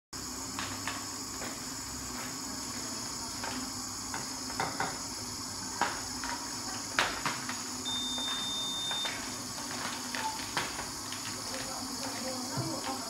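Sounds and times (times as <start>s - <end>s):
steady background hum: 0.2s - 13.0s
thin high beep: 7.9s - 9.1s.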